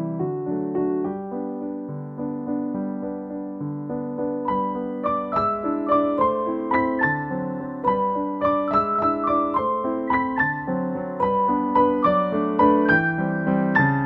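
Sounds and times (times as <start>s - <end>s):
gentle piano melody: 0.0s - 14.0s.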